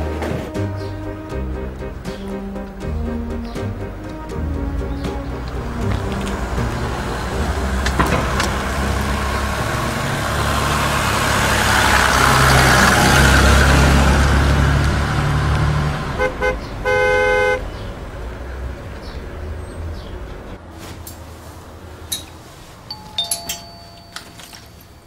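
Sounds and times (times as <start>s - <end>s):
car driving past: 0.0s - 22.7s
car horn toots: 16.1s - 17.8s.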